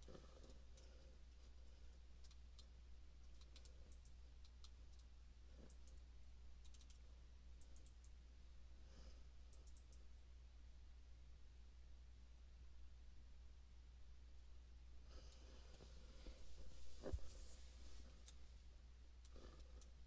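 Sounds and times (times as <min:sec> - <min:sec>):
steady low hum: 0:00.0 - 0:20.0
faint computer clicking: 0:02.2 - 0:08.2, 0:09.5 - 0:10.1, 0:18.0 - 0:18.4.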